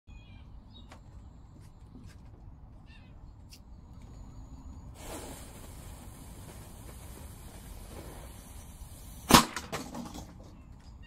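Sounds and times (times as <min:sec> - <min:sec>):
faint bird chirps: 0:00.1 - 0:01.0
low outdoor rumble: 0:00.1 - 0:11.0
fuse sizzling: 0:04.0 - 0:09.6.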